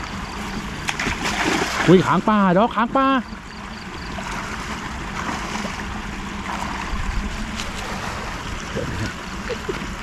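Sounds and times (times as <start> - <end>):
water rushing from pipe: 0.0 - 10.0
splashes from person wading: 0.5 - 2.3, 3.8 - 10.0.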